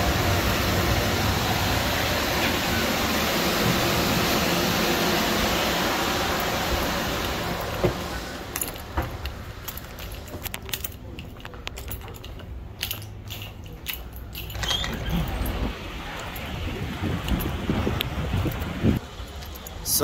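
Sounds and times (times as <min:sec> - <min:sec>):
whooshing mechanical noise: 0:00.0 - 0:20.0
small metal items jangling: 0:08.5 - 0:16.5, 0:18.4 - 0:20.0.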